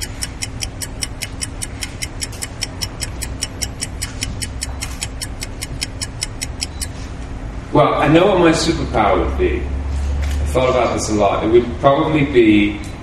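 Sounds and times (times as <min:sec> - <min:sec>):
clock ticking: 0:00.0 - 0:07.0.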